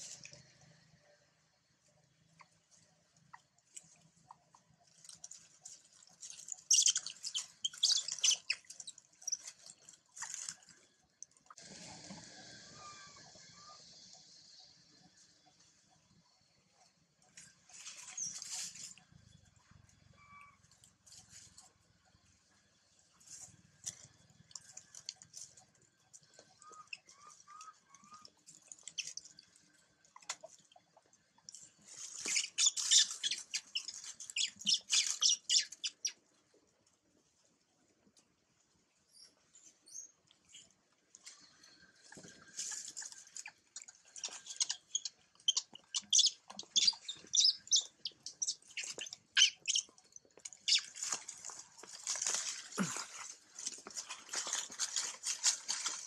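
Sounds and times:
high-pitched chirps and squeaks: 5.1 - 9.7, 17.6 - 19.0, 26.5 - 29.3, 31.9 - 36.2, 42.5 - 51.4.

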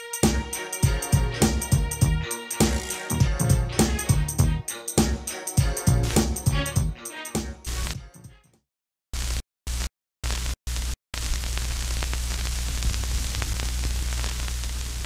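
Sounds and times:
closing music: 0.0 - 8.4
crackles: 9.2 - 15.0
video static hiss with low hum: 11.2 - 15.0.

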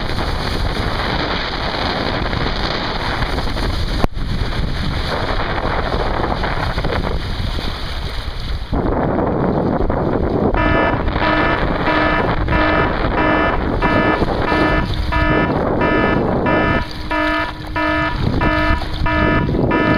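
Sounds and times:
wind buffeting microphone: 0.0 - 19.9
electronic beeps: 10.6 - 19.9.

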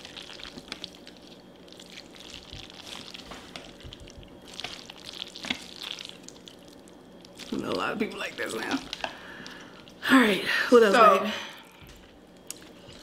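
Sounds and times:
chewing: 0.0 - 7.6, 11.9 - 13.0
saucy noodles moving: 0.0 - 10.0.

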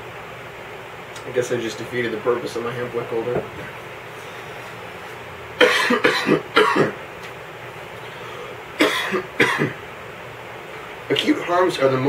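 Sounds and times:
man coughing: 5.6 - 7.0, 8.8 - 9.8.

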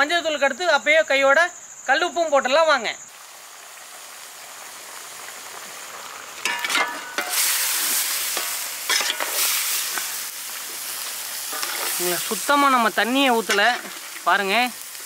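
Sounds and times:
meat sizzling in a pan: 3.1 - 15.0
metal ladle scraping a pan: 6.4 - 10.2, 11.4 - 12.3, 13.4 - 14.3.

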